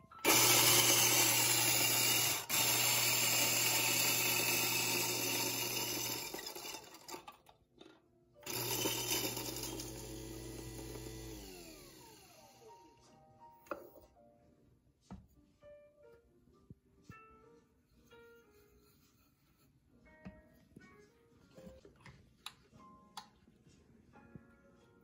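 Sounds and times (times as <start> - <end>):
coffee grinder motor grinding beans: 0.2 - 7.5, 8.4 - 12.8.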